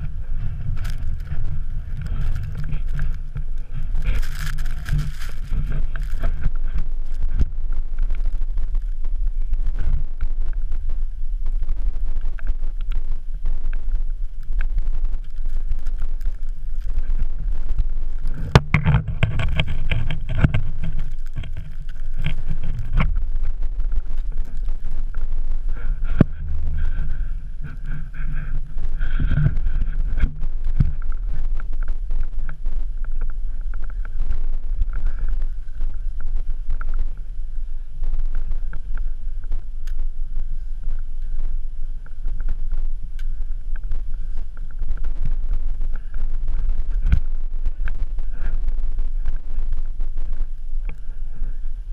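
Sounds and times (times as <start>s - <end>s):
wind buffeting microphone: 0.0s - 50.6s
sharp clicks and knocks: 18.3s - 25.2s.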